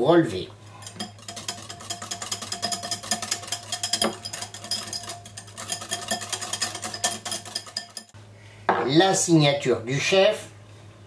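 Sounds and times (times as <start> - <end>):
whisk clicking on glass bowl: 0.8 - 8.2.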